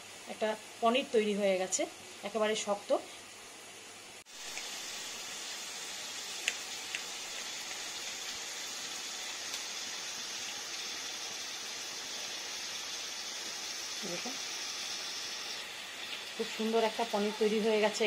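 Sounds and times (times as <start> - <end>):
steady hiss: 0.0 - 18.0.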